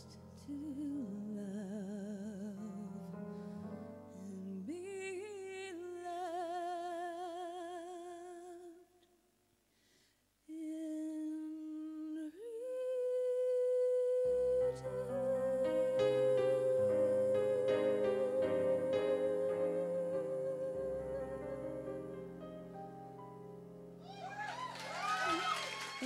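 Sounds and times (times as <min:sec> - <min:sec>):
woman singing with vibrato: 0:00.0 - 0:03.1, 0:04.2 - 0:08.9, 0:10.5 - 0:22.2.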